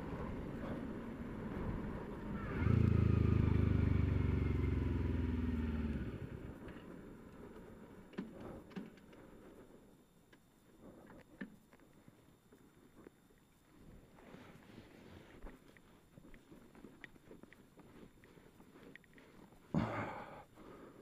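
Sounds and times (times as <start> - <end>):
vehicle engine: 0.0 - 6.9.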